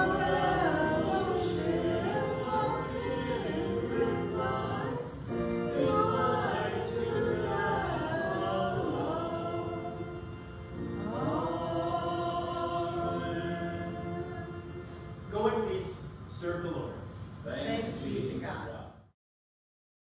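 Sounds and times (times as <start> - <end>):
congregation singing a hymn: 0.0 - 15.2
keyboard accompaniment: 0.0 - 15.3.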